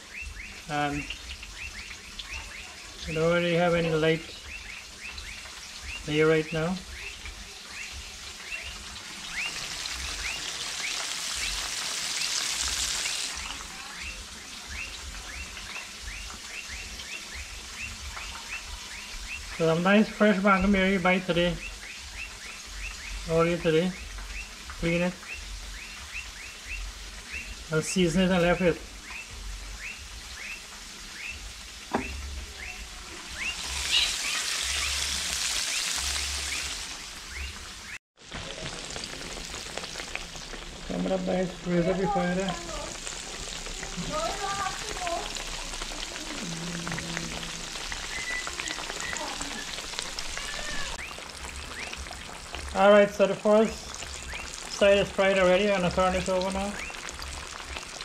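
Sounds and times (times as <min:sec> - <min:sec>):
fish sizzling in frying oil: 0:00.0 - 0:58.0
knock: 0:31.9 - 0:32.2
high chirp: 0:47.9 - 0:49.8.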